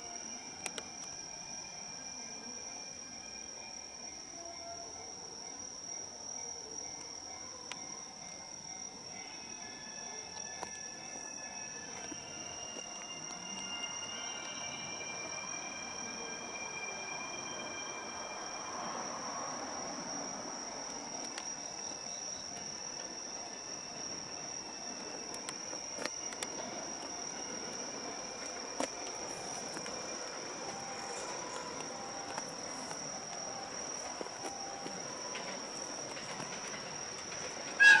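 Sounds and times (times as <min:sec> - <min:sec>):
crickets trilling: 0:00.0 - 0:38.0
distant train rumble: 0:08.1 - 0:38.0.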